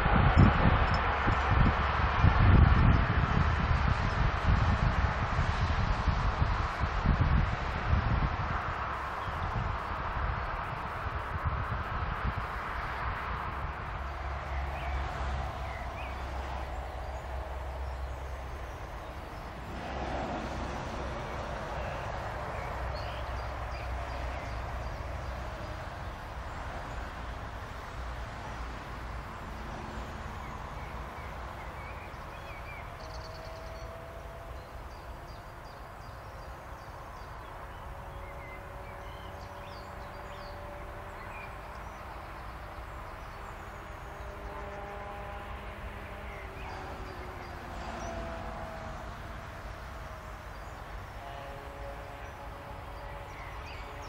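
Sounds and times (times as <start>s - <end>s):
distant electric locomotive: 0.0s - 54.0s
open-air background rumble: 0.0s - 54.0s
bird chirps: 30.4s - 45.0s.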